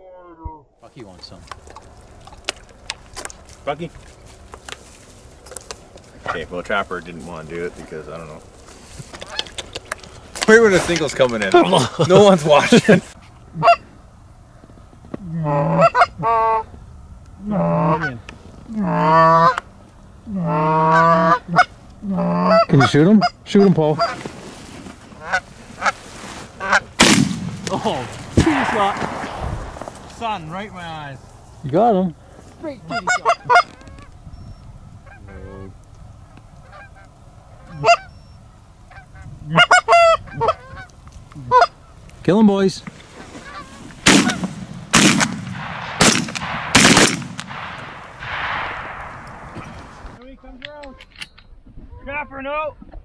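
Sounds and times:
goose call honks: 0:13.6 - 0:13.9, 0:15.3 - 0:16.7, 0:17.4 - 0:19.6, 0:20.3 - 0:24.2, 0:25.2 - 0:26.0, 0:26.6 - 0:26.9, 0:32.8 - 0:34.1, 0:36.6 - 0:38.2, 0:38.9 - 0:41.9.

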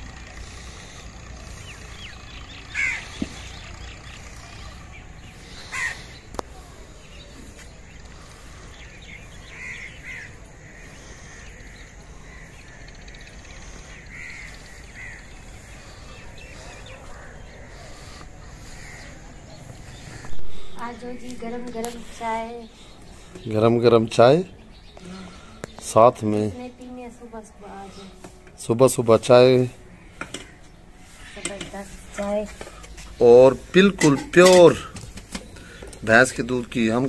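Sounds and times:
crows cawing: 0:02.6 - 0:03.9, 0:05.4 - 0:06.3, 0:08.1 - 0:20.8.

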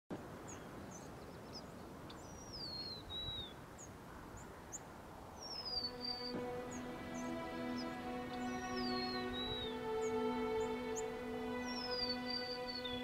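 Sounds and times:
downward sliding whistled bird calls: 0:00.5 - 0:04.8, 0:05.4 - 0:13.0
steady hiss: 0:01.8 - 0:13.0
short high bird chirps: 0:05.4 - 0:13.0
music with long held notes: 0:05.7 - 0:13.0.

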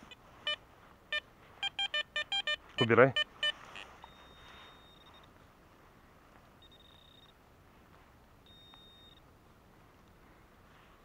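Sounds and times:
metal detector short beeps: 0:00.4 - 0:05.3, 0:06.6 - 0:07.3, 0:08.4 - 0:09.2.

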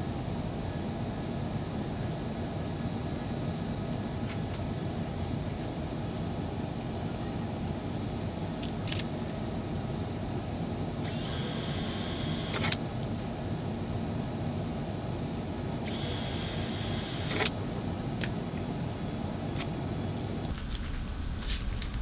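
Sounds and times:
steady low hum: 0:00.0 - 0:22.0
cordless drill drilling metal: 0:11.0 - 0:12.8, 0:15.8 - 0:17.5.

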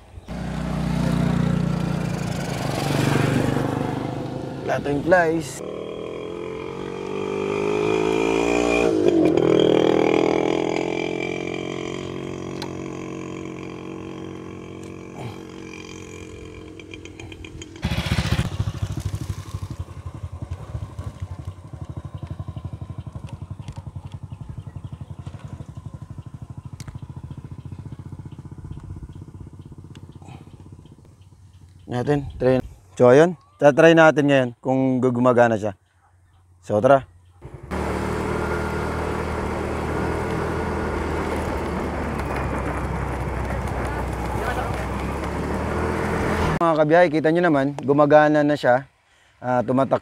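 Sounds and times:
motorcycle passing by: 0:00.2 - 0:32.6, 0:37.4 - 0:46.7
small engine putting: 0:37.4 - 0:46.6.

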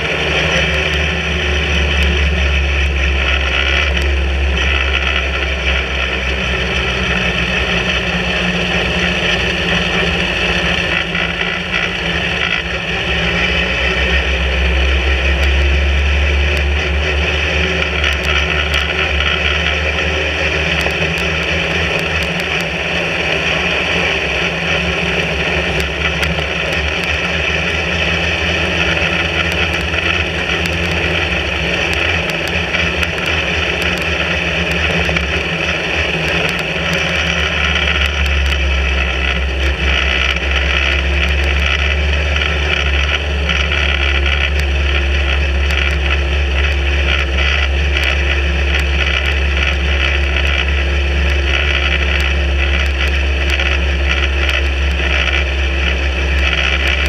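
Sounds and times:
race car engine running: 0:00.0 - 0:57.0.

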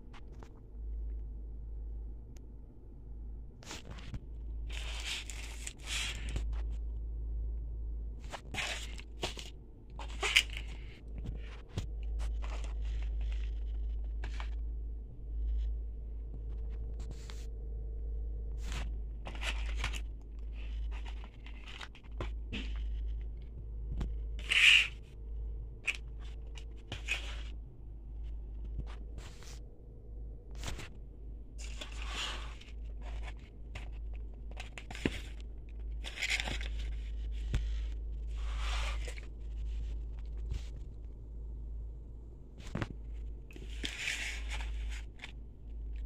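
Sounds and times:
low steady hum: 0:00.0 - 0:46.0
paper wrappers crinkling: 0:04.7 - 0:06.5, 0:08.3 - 0:14.6, 0:18.7 - 0:23.3, 0:31.6 - 0:40.5.

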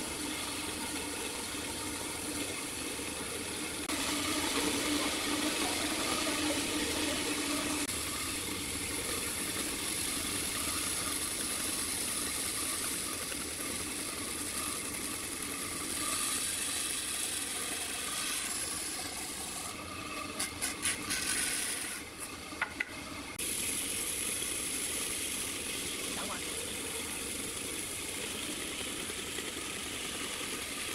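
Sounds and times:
band saw cutting wood: 0:03.8 - 0:23.4.

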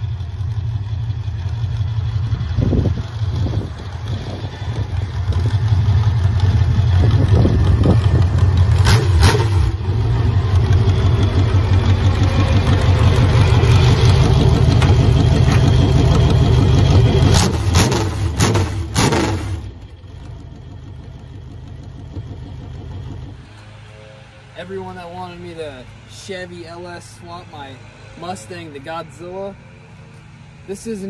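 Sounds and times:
sharp exhaust cracks: 0:00.0 - 0:23.6
engine running through open exhaust: 0:00.0 - 0:31.0.

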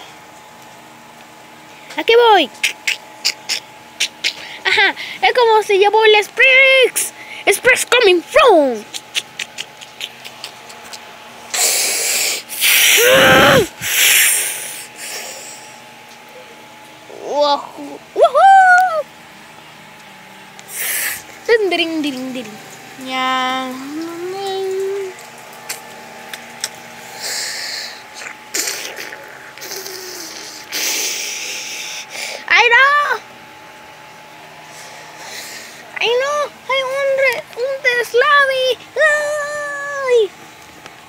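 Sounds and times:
child making breathy hisses: 0:11.5 - 0:15.6, 0:20.7 - 0:21.2, 0:27.2 - 0:32.4
child voicing ooh: 0:12.6 - 0:14.4, 0:17.2 - 0:19.1.

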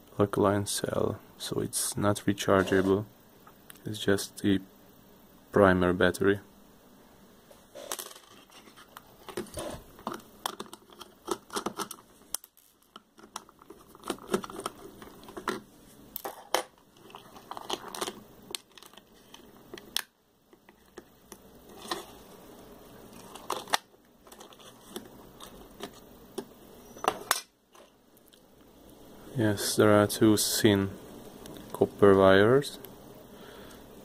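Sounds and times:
plastic parts clicking and tapping: 0:09.0 - 0:15.6.

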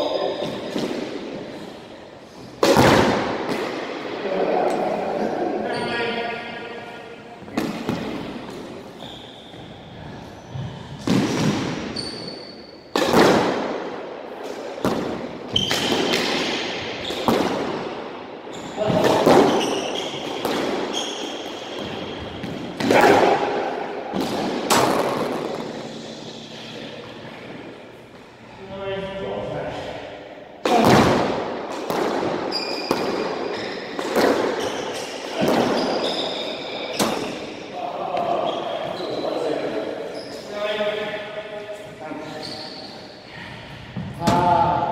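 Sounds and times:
squash ball smacking walls: 0:02.6 - 0:03.9, 0:11.0 - 0:11.9, 0:12.9 - 0:13.9, 0:14.8 - 0:18.0, 0:18.8 - 0:25.6, 0:30.6 - 0:36.0
shoes squeaking on wooden floor: 0:09.0 - 0:10.8, 0:18.5 - 0:22.5, 0:32.5 - 0:37.4.

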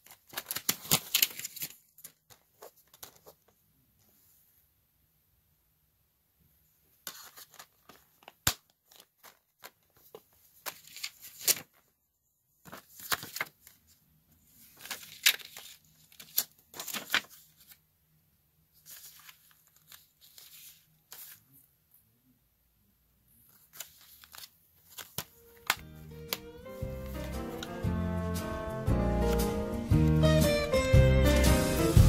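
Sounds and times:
paper rustling against plastic case: 0:00.0 - 0:03.6, 0:07.0 - 0:11.9, 0:12.6 - 0:13.9, 0:14.6 - 0:17.8, 0:18.8 - 0:21.4, 0:23.5 - 0:27.8.

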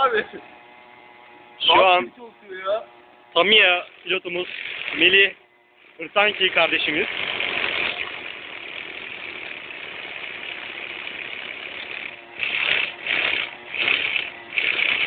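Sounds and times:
small nitro engine revving: 0:03.4 - 0:15.0.

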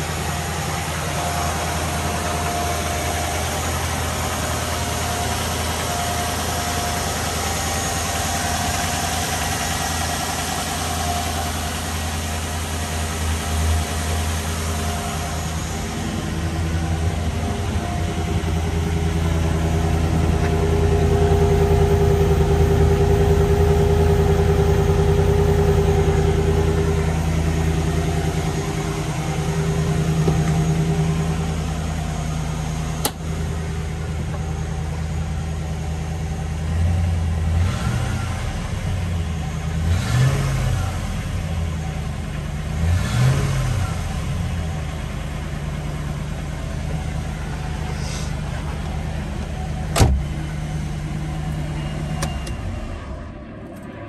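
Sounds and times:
car engine idling and revving: 0:00.0 - 0:54.0
car door click: 0:50.0 - 0:50.3.

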